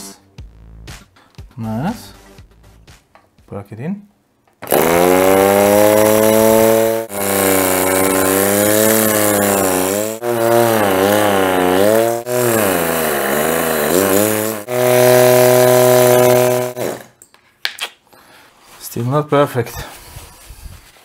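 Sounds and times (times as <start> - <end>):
air compressor buzzing drone: 4.6 - 17.1.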